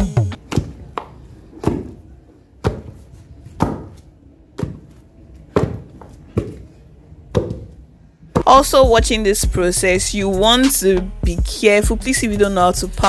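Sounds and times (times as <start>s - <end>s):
pestle thudding in wooden mortar: 0.4s - 2.0s, 3.6s - 4.0s.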